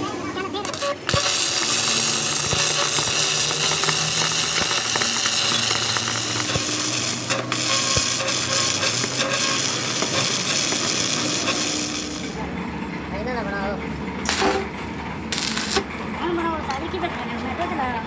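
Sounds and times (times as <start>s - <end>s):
welding arc crackling: 0.0s - 12.4s, 14.2s - 16.0s.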